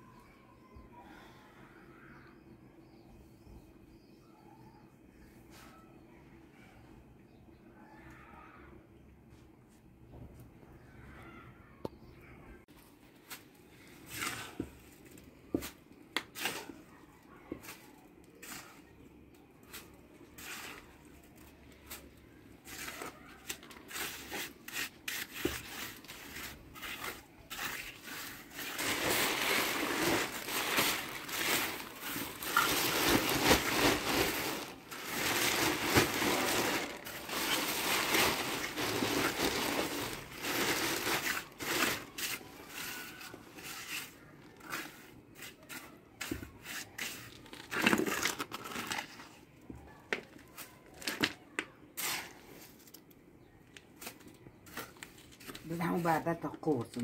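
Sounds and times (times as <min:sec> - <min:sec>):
trowel scraping wet plaster: 0:22.6 - 0:28.6
plastic sack crinkling: 0:25.2 - 0:44.7, 0:47.3 - 0:49.4.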